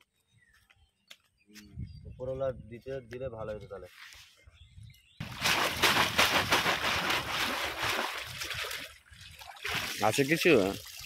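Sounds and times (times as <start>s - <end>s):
water splashing and streaming: 5.2s - 11.0s.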